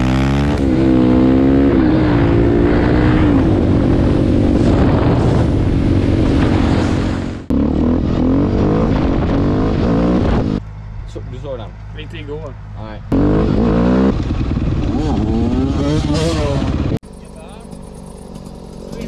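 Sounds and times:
motorcycle engine running: 12.6s - 19.0s
dirt bike engine running: 13.1s - 19.0s.

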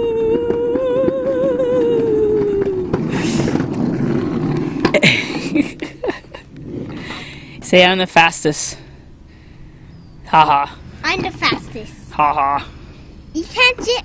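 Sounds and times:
plastic wheels rolling on concrete: 0.0s - 8.4s.

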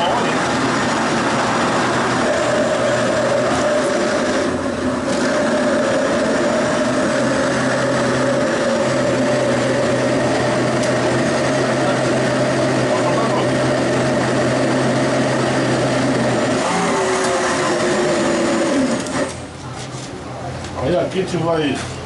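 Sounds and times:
blender motor running: 0.0s - 19.4s.

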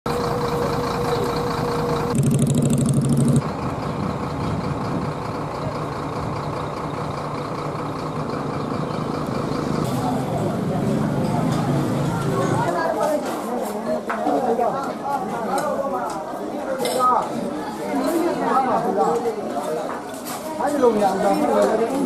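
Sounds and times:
bus engines droning: 0.1s - 13.0s
outdoor background noise: 0.1s - 22.0s.

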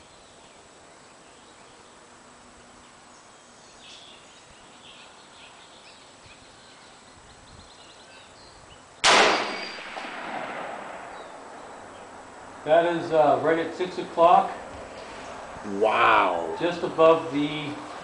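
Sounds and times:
faint bird chirps: 0.0s - 9.0s
rifle shot with echo: 9.0s - 11.3s.

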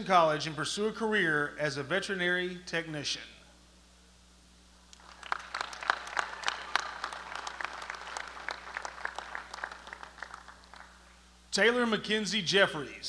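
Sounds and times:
crowd applauding: 4.9s - 11.2s.

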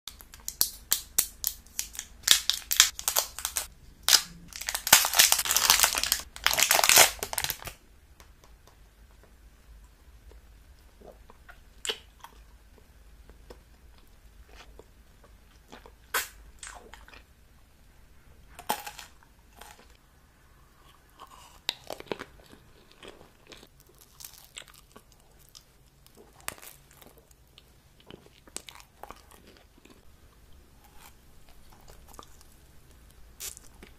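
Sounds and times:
hard candy crinkling and crunching: 0.1s - 7.8s, 18.6s - 20.0s, 21.2s - 30.1s.

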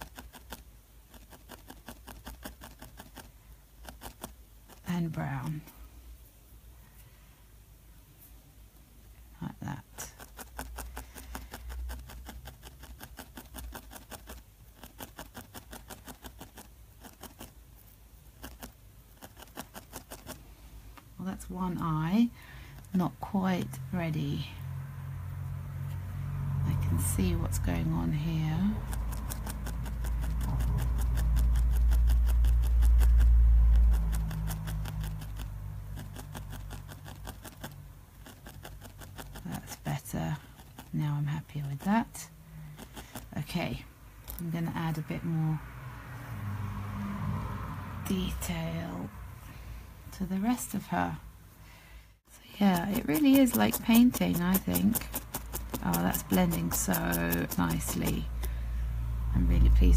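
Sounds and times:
felting needle stabbing wool: 0.0s - 5.8s, 10.0s - 20.4s, 27.0s - 42.2s, 42.8s - 45.0s, 52.5s - 58.7s
low rumble: 58.1s - 59.9s.

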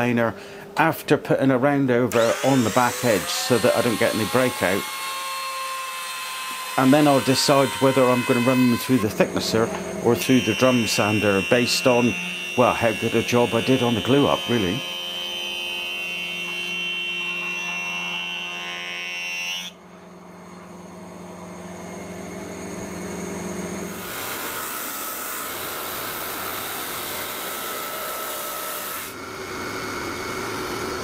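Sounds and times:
drum sander running: 2.1s - 15.6s, 21.6s - 31.0s
planer cutting boards: 2.1s - 19.8s, 23.9s - 31.0s.

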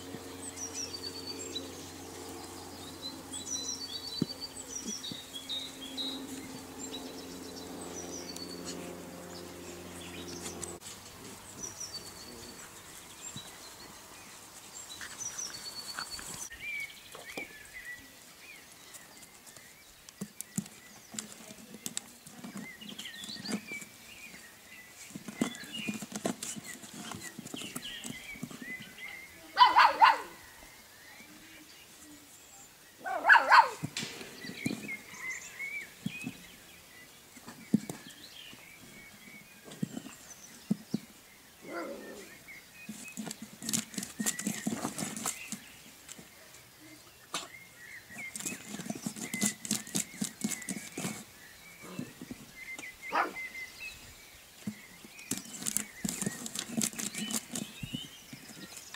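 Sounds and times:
paws scratching at a lid: 20.2s - 29.0s, 42.2s - 45.8s, 48.1s - 51.4s, 54.6s - 58.9s
dog barks: 29.6s - 30.4s, 33.0s - 33.8s, 53.1s - 53.4s.

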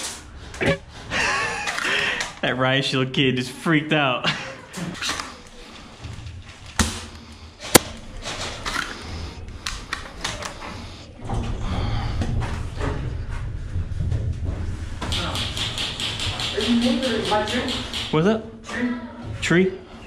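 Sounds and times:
clicks and knocks in metal room: 11.2s - 18.3s.

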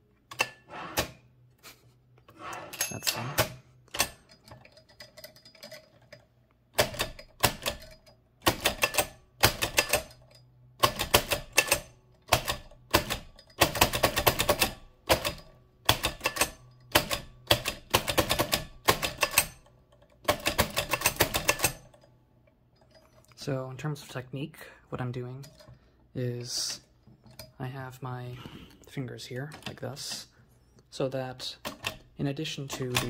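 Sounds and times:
typewriter clacking: 6.8s - 10.2s, 10.8s - 19.6s, 20.2s - 21.9s, 32.7s - 33.0s.

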